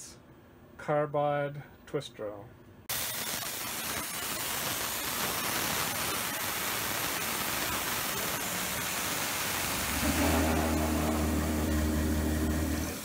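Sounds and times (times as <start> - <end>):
mill drill spinning hiss: 2.9 - 13.0.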